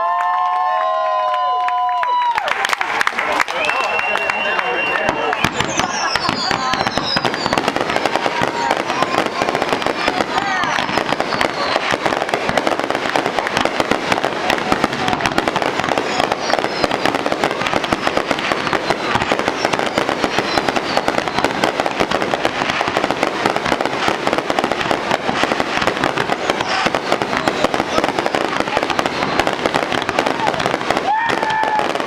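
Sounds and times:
fireworks bursting and crackling: 0:01.3 - 0:32.0
faint firework whistles: 0:03.5 - 0:23.8, 0:24.6 - 0:32.0.

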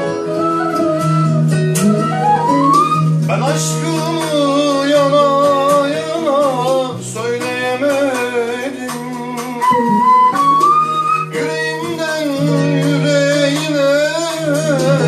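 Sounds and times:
wooden flute melody: 0:00.0 - 0:05.1, 0:09.4 - 0:15.0.

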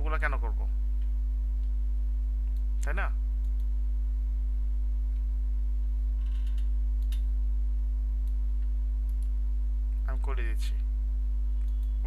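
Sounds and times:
low electrical hum: 0:00.0 - 0:12.0
faint click: 0:11.6 - 0:12.0.

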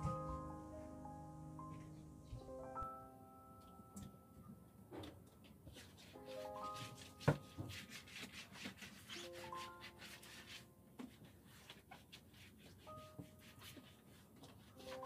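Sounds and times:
soft piano-like background music: 0:00.0 - 0:15.0
cloth wiping a hard floor: 0:05.7 - 0:15.0.

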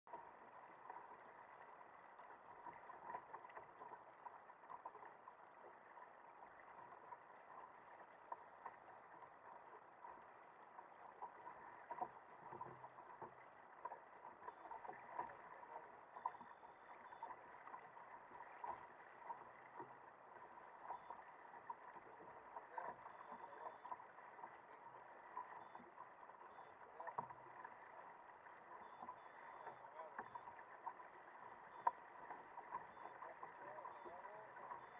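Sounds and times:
small water splashes: 0:00.1 - 0:34.9
water slapping against hull: 0:00.1 - 0:34.9.

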